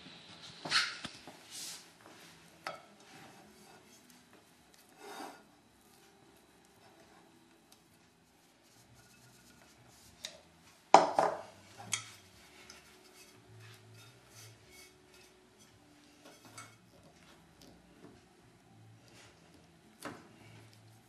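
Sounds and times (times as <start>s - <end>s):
kitchenware knocking on table: 11.0s - 11.4s.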